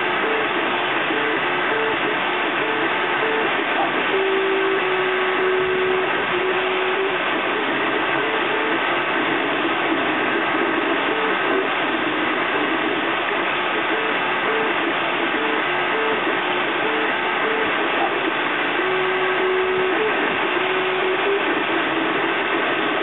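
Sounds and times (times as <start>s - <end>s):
three d printer stepper motor tones: 0.0s - 9.3s, 18.8s - 22.7s
steady whir: 0.0s - 23.0s.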